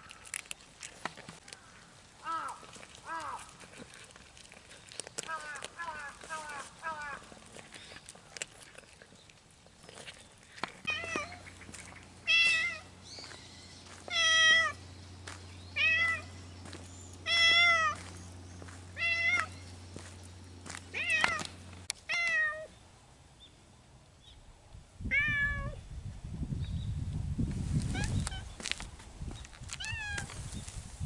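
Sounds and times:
cat meowing: 17.3 - 18.0, 19.0 - 19.5, 20.9 - 21.5.

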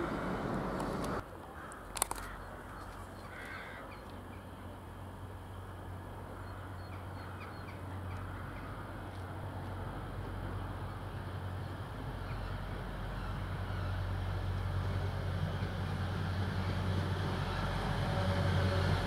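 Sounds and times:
crow cawing: 3.2 - 3.9.

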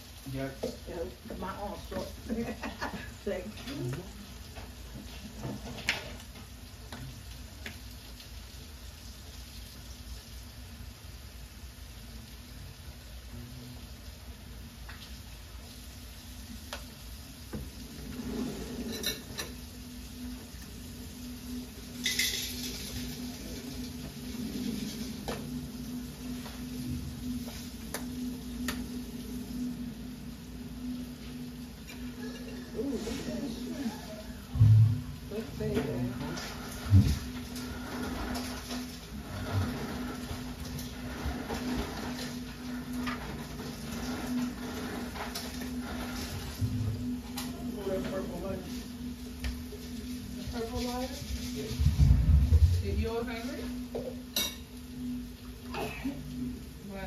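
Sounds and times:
food sizzling: 0.0 - 57.0
low hum: 16.5 - 57.0.

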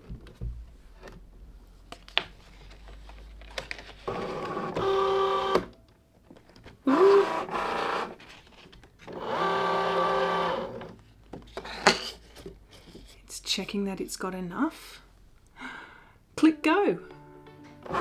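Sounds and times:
cutting machine motor whine: 4.1 - 5.7, 9.1 - 10.9.

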